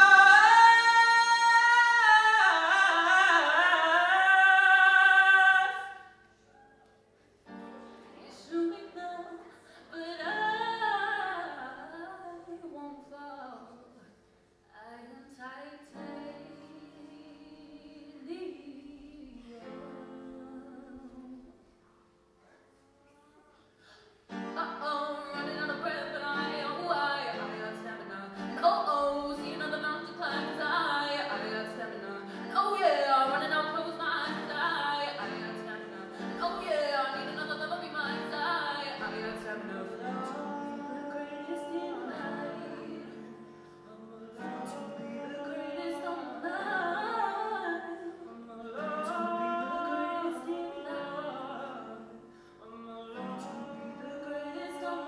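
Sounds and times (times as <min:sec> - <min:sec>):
woman singing into a microphone: 0:00.0 - 0:06.1, 0:08.2 - 0:14.0, 0:14.8 - 0:21.6, 0:24.3 - 0:55.0.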